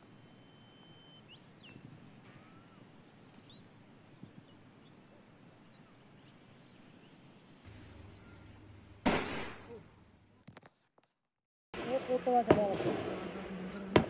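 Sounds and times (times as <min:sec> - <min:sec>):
faint bird chirps: 0:00.0 - 0:09.0.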